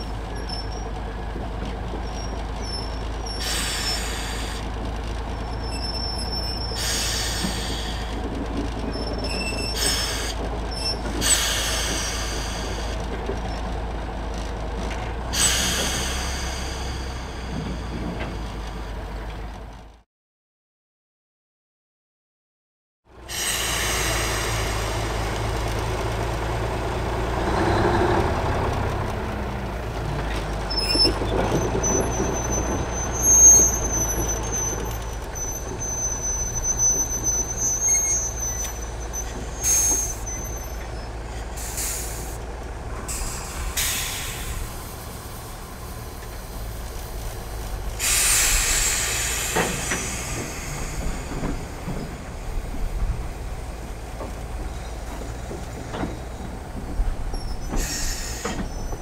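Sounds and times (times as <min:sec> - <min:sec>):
diesel locomotive idling: 0:00.0 - 0:20.0, 0:23.1 - 0:59.0
air brakes hissing: 0:03.4 - 0:04.7, 0:05.8 - 0:08.2, 0:09.7 - 0:13.1, 0:15.3 - 0:18.9, 0:23.3 - 0:25.6, 0:30.8 - 0:59.0.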